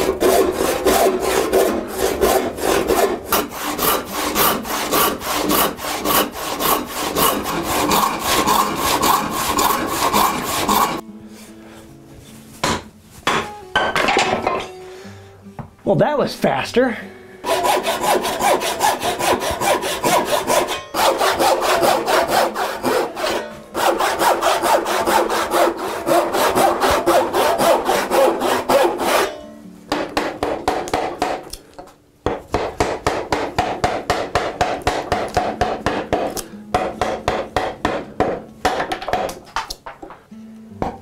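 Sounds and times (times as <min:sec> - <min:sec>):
hand saw rasping through wood: 0:00.0 - 0:11.0, 0:17.4 - 0:29.3, 0:29.9 - 0:31.6, 0:32.5 - 0:38.4.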